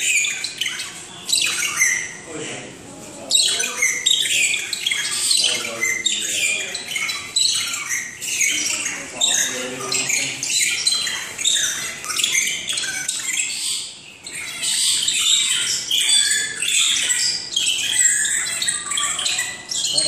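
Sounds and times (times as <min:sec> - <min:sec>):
birds chirping and calling: 0:00.0 - 0:20.0.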